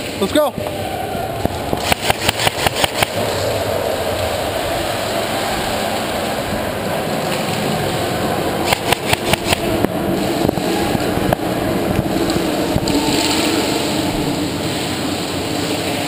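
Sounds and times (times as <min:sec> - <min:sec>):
steady rushing noise: 0:00.0 - 0:16.0
airsoft rifle shots: 0:01.7 - 0:03.2, 0:08.6 - 0:09.7.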